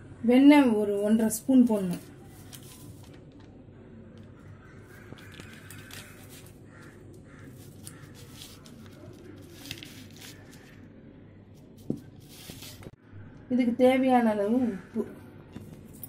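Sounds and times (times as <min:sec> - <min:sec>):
spoon on paper wrapper: 0:01.7 - 0:03.4, 0:04.9 - 0:06.6, 0:07.4 - 0:10.8, 0:11.6 - 0:13.0
faint bird caws: 0:03.7 - 0:11.5, 0:14.6 - 0:15.5.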